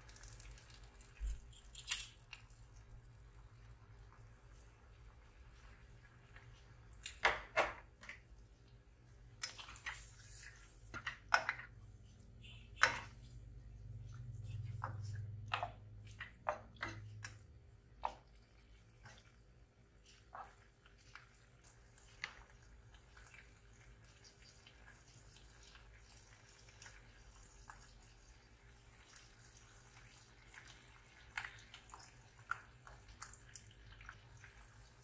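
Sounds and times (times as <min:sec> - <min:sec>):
coconut milk boiling: 0:00.0 - 0:01.5, 0:02.3 - 0:35.0.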